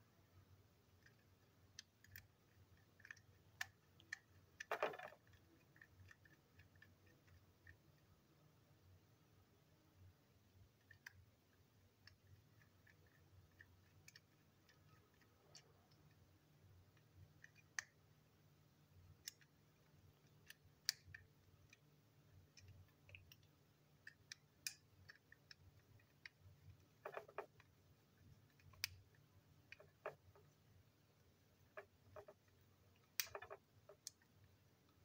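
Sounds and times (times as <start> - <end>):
faint steady hum: 0.0 - 35.0
plastic toy train clicking: 3.0 - 6.9.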